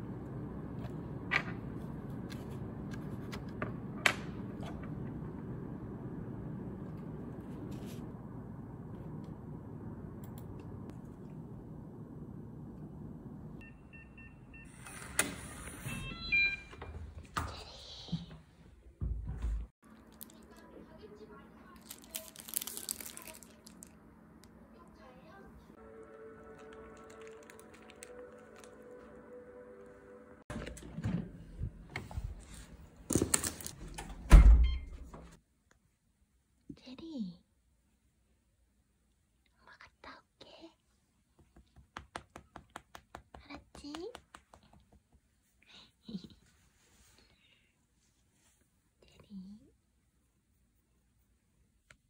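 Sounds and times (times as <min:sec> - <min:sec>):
low room hum: 0:00.0 - 0:52.0
keypad beeps: 0:13.6 - 0:15.2, 0:15.8 - 0:16.9, 0:34.6 - 0:34.9
background music: 0:25.8 - 0:30.4.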